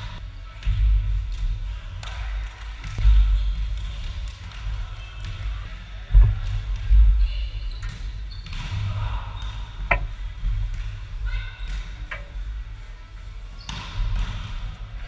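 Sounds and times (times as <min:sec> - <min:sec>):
players' voices in echoing hall: 0:00.0 - 0:15.0
volleyball hit dull thuds: 0:09.9 - 0:10.2.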